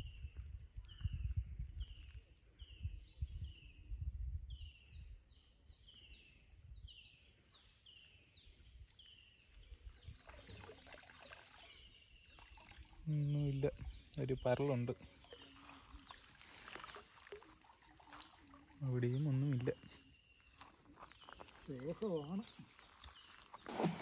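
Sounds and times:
wind on microphone: 0:00.0 - 0:05.3
water splashing and dripping: 0:10.1 - 0:20.0.

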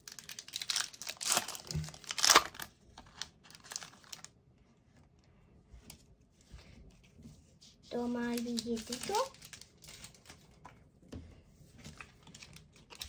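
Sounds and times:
foil wrapper tearing and crinkling: 0:00.0 - 0:04.3, 0:08.3 - 0:10.4, 0:12.0 - 0:13.0.

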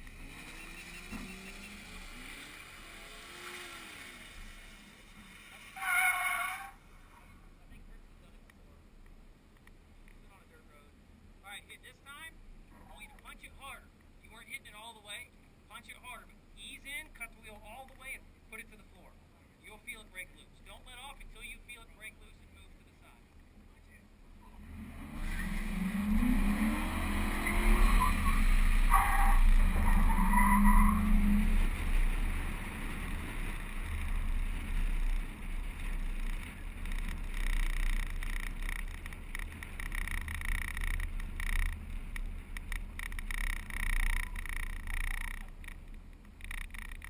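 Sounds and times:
car engine revving: 0:00.0 - 0:06.3, 0:24.4 - 0:47.0
high tyre squeal: 0:00.0 - 0:07.4, 0:25.2 - 0:41.8
wet tyres skidding and hissing: 0:00.1 - 0:07.4, 0:24.6 - 0:45.6.

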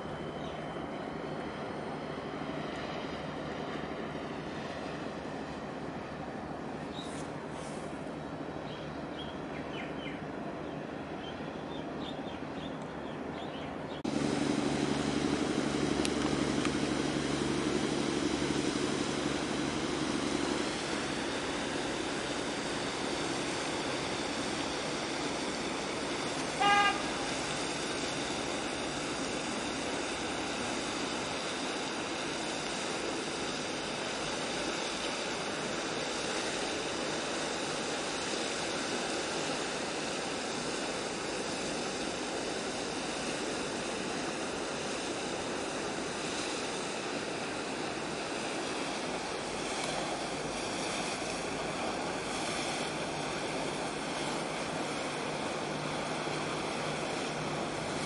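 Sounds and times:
water rushing and splashing: 0:00.0 - 0:09.5, 0:14.0 - 0:58.0
ship machinery hum: 0:00.0 - 0:58.0
ship horn toot: 0:22.9 - 0:29.0.

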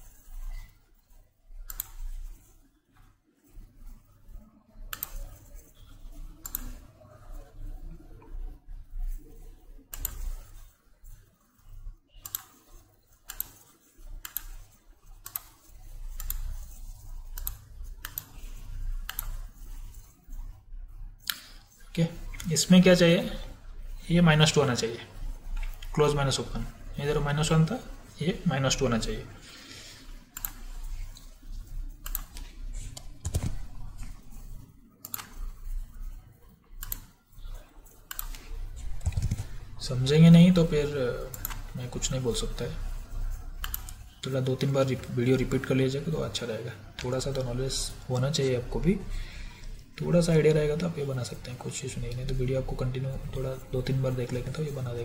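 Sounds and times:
computer mouse clicks: 0:00.0 - 0:03.6, 0:04.9 - 0:07.4, 0:08.2 - 0:11.2, 0:12.2 - 0:20.6, 0:21.2 - 0:22.6, 0:30.0 - 0:39.6, 0:41.3 - 0:44.1.

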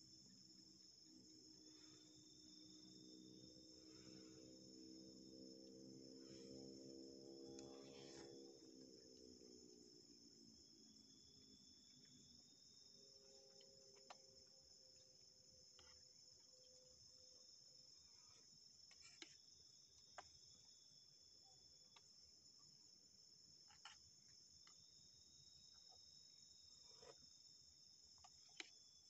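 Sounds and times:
thin steady tone: 0:00.0 - 0:21.6
high-pitched insect drone: 0:00.2 - 0:13.8.

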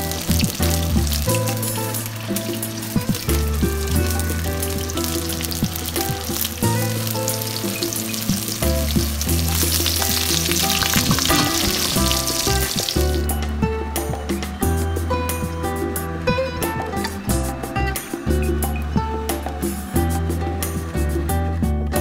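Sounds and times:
tofu sizzling in oil: 0:00.0 - 0:13.2
background music with bass notes: 0:00.0 - 0:22.0.

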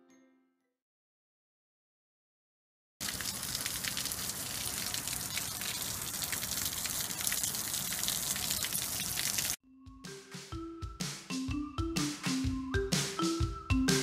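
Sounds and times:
steady rain falling: 0:03.0 - 0:09.6.

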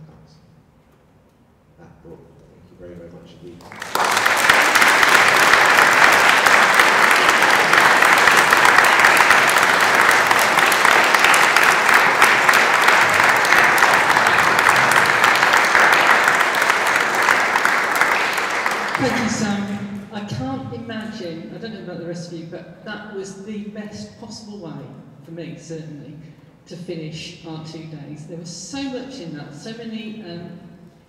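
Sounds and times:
audience applauding: 0:03.5 - 0:20.0.

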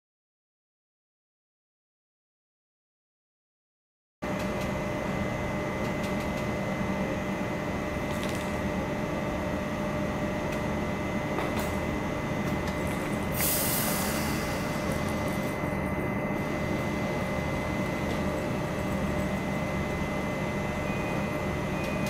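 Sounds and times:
electric locomotive hum: 0:04.2 - 0:22.0
high steady whine: 0:04.2 - 0:22.0
short burst of hissing: 0:13.4 - 0:14.6.

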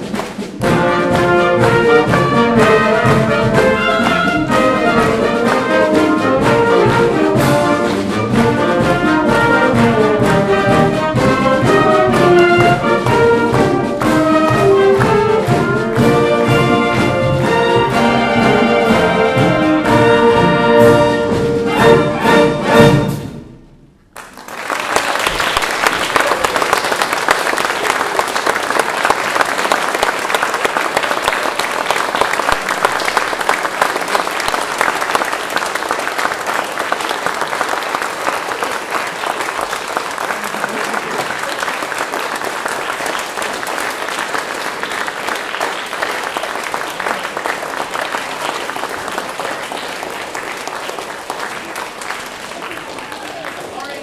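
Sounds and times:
audience applause: 0:24.1 - 0:54.0.

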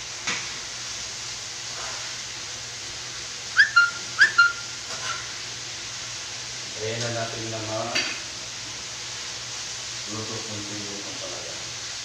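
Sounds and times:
steady hiss: 0:00.0 - 0:12.0
whistled notes: 0:03.6 - 0:04.7.

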